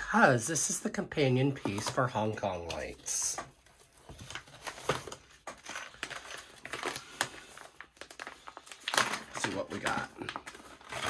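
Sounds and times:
cardboard packaging crinkling: 1.4 - 11.0.

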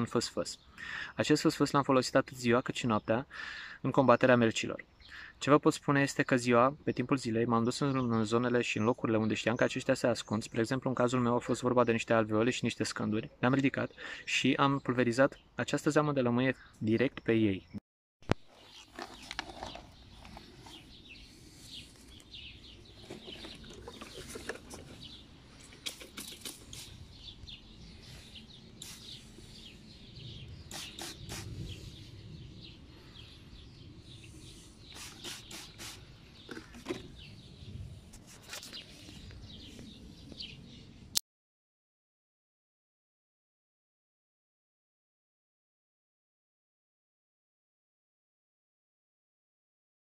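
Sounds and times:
birds chirping: 0.0 - 41.1
spray bottle squirting: 25.6 - 27.0, 28.8 - 29.3, 30.7 - 31.5, 34.8 - 36.1.

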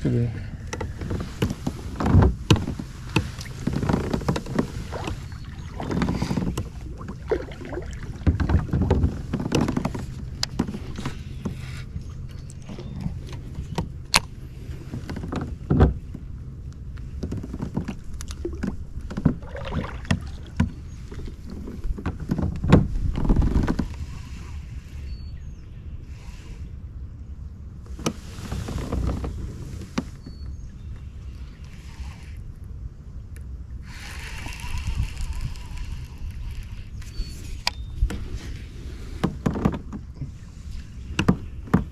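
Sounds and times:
knocks and clicks on a kayak: 0.6 - 24.0, 37.4 - 41.9.

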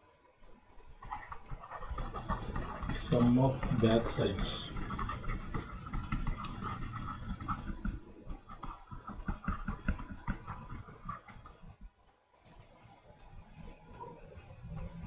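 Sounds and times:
stylus tapping on tablet screen: 1.9 - 11.7.

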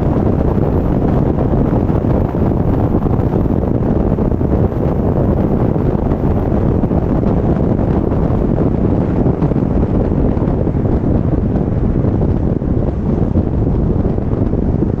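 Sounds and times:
road noise: 0.0 - 15.0
wind buffeting microphone: 0.0 - 15.0.

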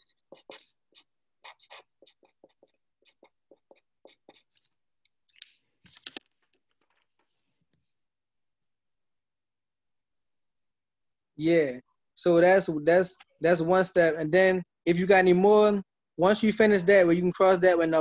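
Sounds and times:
marker scratching on whiteboard: 0.0 - 5.0
marker squeaks: 0.0 - 6.2.

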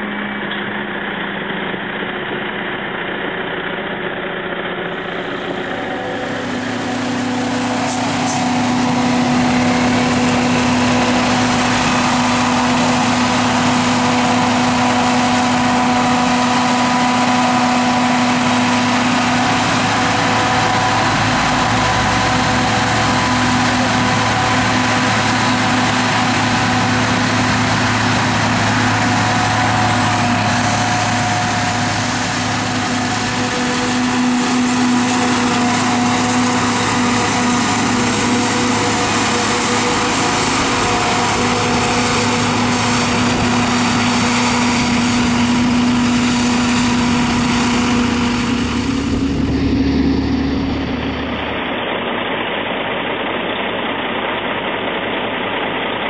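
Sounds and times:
forage harvester chopping crop: 4.8 - 51.8.

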